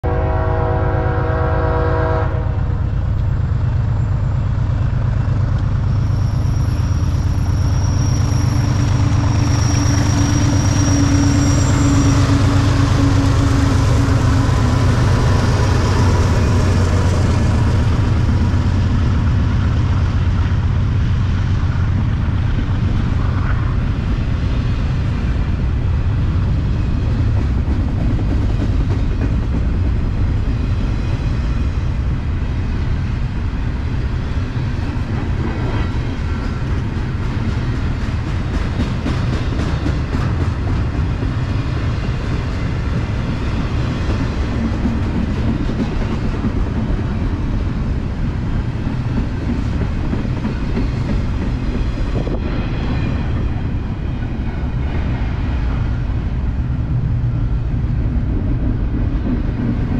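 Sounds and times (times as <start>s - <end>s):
train horn: 0.0s - 2.8s, 8.4s - 17.4s
diesel locomotive rumble and whine: 0.0s - 59.9s
freight cars rumbling and rattling: 2.7s - 59.9s.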